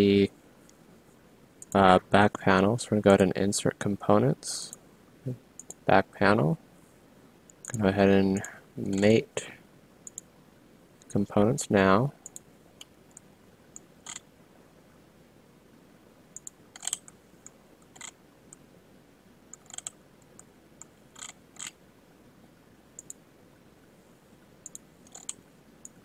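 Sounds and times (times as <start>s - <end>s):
faint room hiss: 0.0s - 26.0s
mouse buttons clicking: 10.0s - 10.3s.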